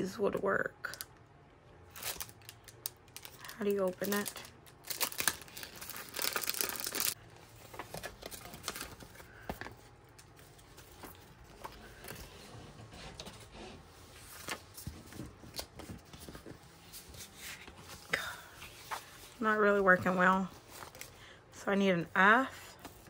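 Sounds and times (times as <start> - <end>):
plastic packaging crinkling and tearing: 1.9 - 11.7.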